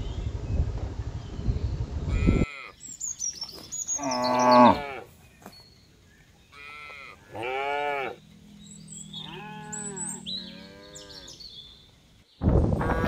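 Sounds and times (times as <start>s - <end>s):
high falling bird chirps: 1.2s - 12.6s
cattle mooing: 4.0s - 5.0s, 6.6s - 8.3s, 8.9s - 11.4s.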